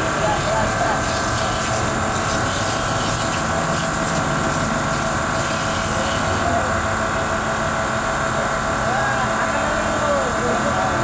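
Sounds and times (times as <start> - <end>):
water jet hissing: 0.0 - 6.5
pressure washer pump humming: 0.0 - 11.0.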